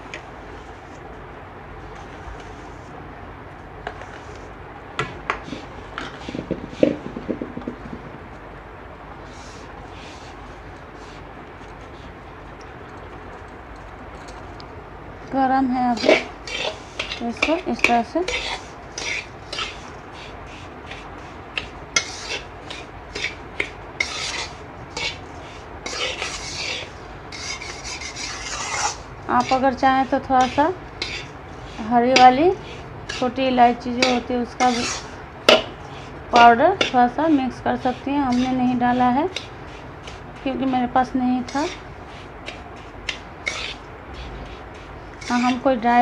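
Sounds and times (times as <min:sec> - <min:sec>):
metal spoon scraping a pan: 0:16.0 - 0:19.9, 0:21.6 - 0:45.8
spoon knocking pan: 0:34.0 - 0:35.8, 0:36.4 - 0:37.2.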